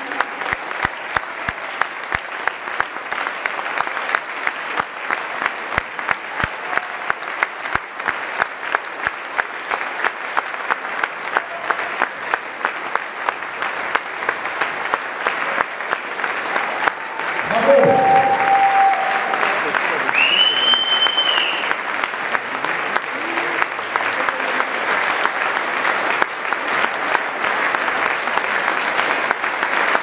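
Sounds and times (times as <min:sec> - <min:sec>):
audience applauding: 0:00.0 - 0:30.0
clapping in unison: 0:00.0 - 0:30.0.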